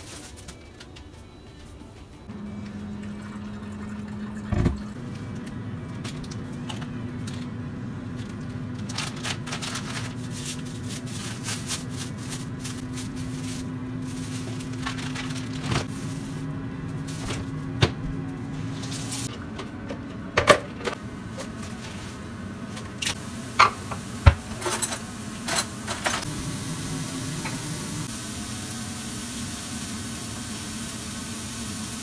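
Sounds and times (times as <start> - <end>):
low hum: 2.2 - 28.7
plastic bag crinkling: 8.8 - 16.2.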